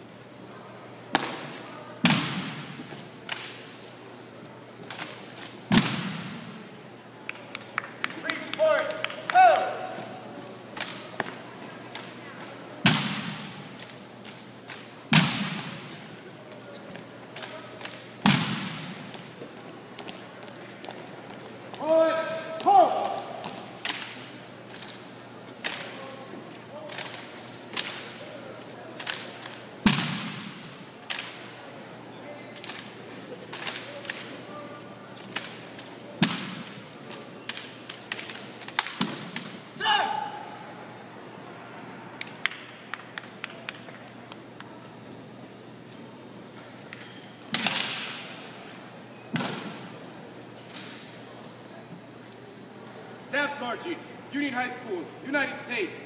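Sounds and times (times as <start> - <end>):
rifles striking floor echoing: 1.1 - 4.0, 4.8 - 6.6, 12.0 - 16.3, 17.4 - 19.6, 22.2 - 28.4, 29.0 - 31.7, 35.2 - 40.8, 46.9 - 50.0.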